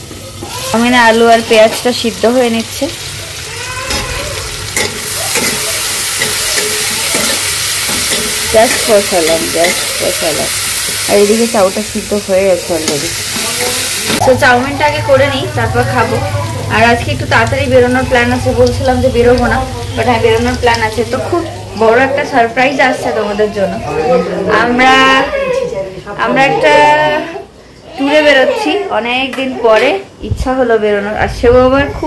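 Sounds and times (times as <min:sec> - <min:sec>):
potatoes and onions sizzling: 0:00.0 - 0:25.1.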